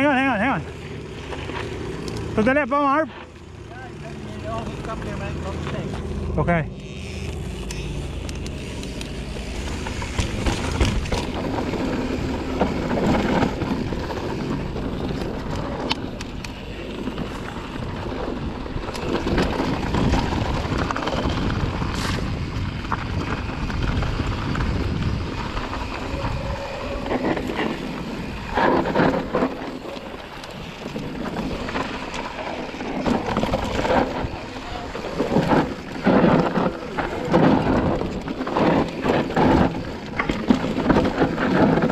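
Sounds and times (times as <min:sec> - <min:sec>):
bike knocking and rattling: 0:00.0 - 0:41.9
bike tyres on dirt and stones: 0:00.0 - 0:41.9
wind on microphone: 0:17.0 - 0:30.3.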